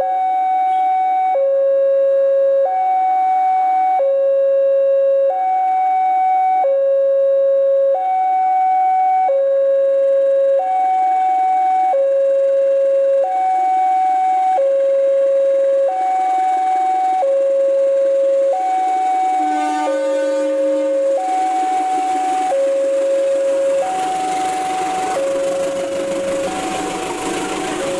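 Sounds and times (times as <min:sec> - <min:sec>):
level crossing two-tone alarm: 0:00.0 - 0:27.9
pitched tone: 0:18.6 - 0:27.9.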